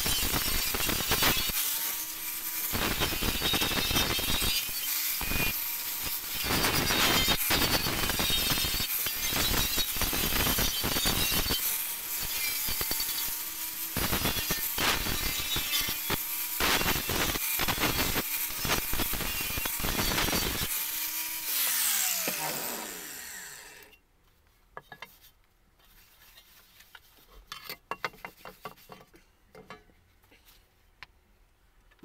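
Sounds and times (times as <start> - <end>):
angle grinder grinding metal: 0.0 - 24.0
grinder disc spinning down: 0.0 - 24.0.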